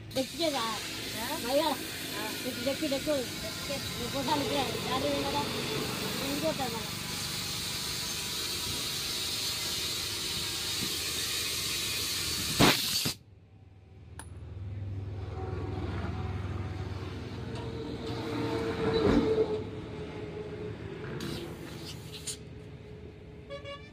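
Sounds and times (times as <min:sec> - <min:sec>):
compressed air hissing: 0:00.0 - 0:13.2, 0:21.2 - 0:22.5
sharp click: 0:12.6 - 0:13.2.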